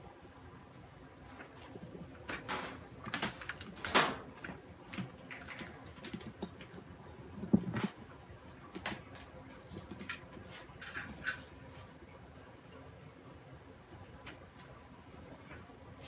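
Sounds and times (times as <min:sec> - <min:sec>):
handling knocks and rustles: 0:01.3 - 0:11.9.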